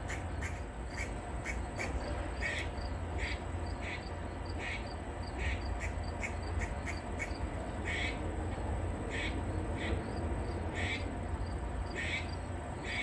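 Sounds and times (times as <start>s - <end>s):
squirrel barking: 0.0s - 8.2s, 9.1s - 10.0s, 11.9s - 13.0s.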